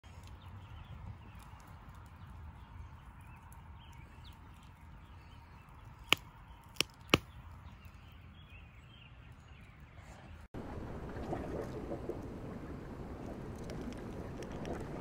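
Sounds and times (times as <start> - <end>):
campfire burning: 10.6 - 15.0
fire popping: 10.6 - 15.0.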